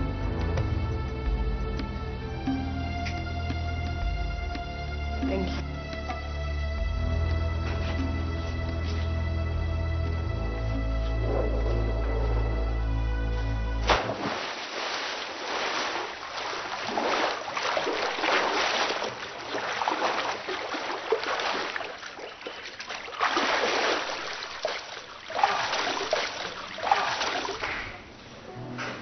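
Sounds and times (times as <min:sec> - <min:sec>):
washing water surging: 0:13.8 - 0:28.0.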